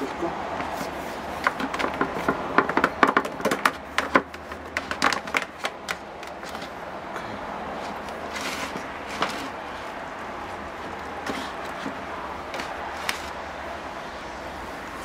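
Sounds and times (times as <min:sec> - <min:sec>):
plastic clicks and knocks: 0:01.4 - 0:06.4.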